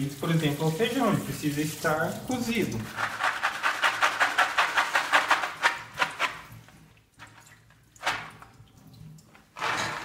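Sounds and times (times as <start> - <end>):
beans rattling in a plastic colander: 2.8 - 6.4.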